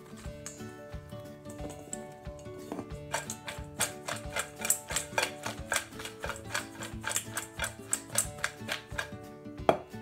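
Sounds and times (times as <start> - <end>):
background music with sustained notes: 0.0 - 10.0
tortilla pieces clicking in metal bowl: 3.1 - 9.2.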